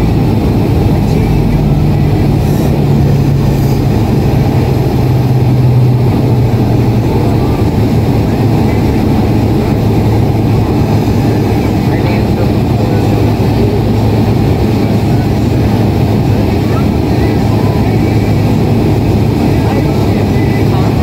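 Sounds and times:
jet engine cabin noise: 0:00.0 - 0:21.0
low hum: 0:00.0 - 0:21.0
rushing air: 0:00.0 - 0:21.0.

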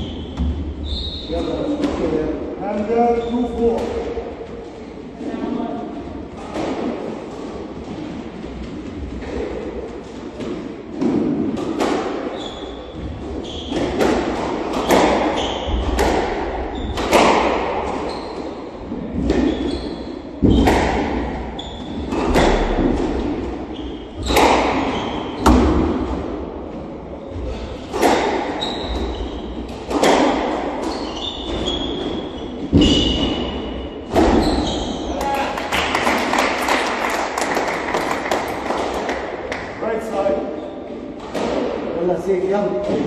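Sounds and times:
shoes squeaking on wooden floor: 0:12.3 - 0:14.0, 0:14.8 - 0:16.0, 0:17.9 - 0:18.6, 0:19.2 - 0:20.8, 0:21.5 - 0:22.3, 0:23.7 - 0:25.6, 0:28.5 - 0:30.2, 0:30.8 - 0:35.4.

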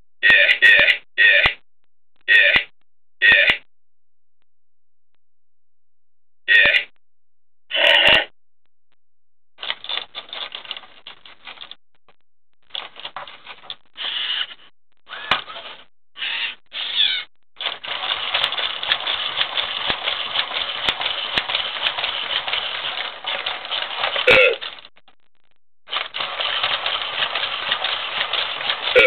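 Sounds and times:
plastic arms clattering: 0:09.6 - 0:11.8, 0:12.6 - 0:14.2, 0:17.6 - 0:25.0, 0:25.9 - 0:29.0
toy robot motors whirring: 0:14.0 - 0:15.6, 0:16.2 - 0:24.8, 0:25.9 - 0:29.0.

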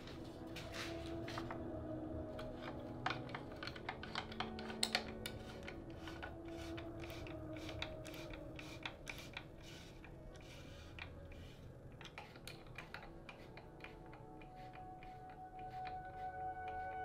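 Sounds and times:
small tools clicking on bike frame: 0:02.4 - 0:16.8.

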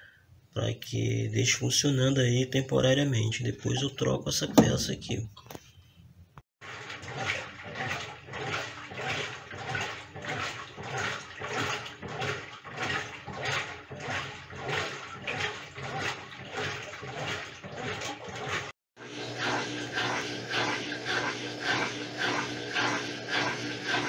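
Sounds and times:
washing machine water sloshing: 0:03.7 - 0:05.3, 0:06.6 - 0:24.0.

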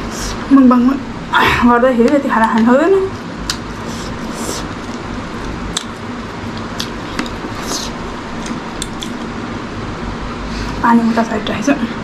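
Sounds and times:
low background hum: 0:00.0 - 0:12.0
wet chewing clicks and smacks: 0:04.8 - 0:07.6, 0:08.3 - 0:09.3.

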